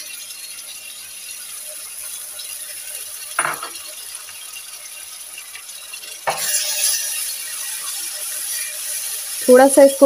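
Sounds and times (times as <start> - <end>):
food sizzling in oil: 0.0 - 10.0
utensil clink: 3.4 - 3.8.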